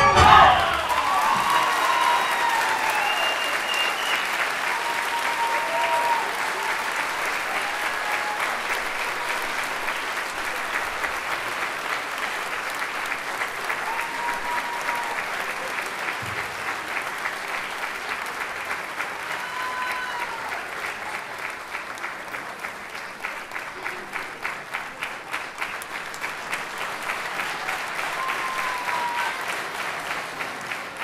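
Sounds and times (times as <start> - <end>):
audience applauding: 0.0 - 31.0
rhythmic clapping in unison: 0.0 - 31.0.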